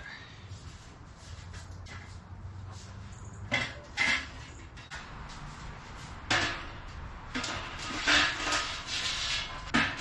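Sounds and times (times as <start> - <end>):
metal pipe scraping: 2.8 - 10.0
metal pipes knocking: 6.2 - 10.0.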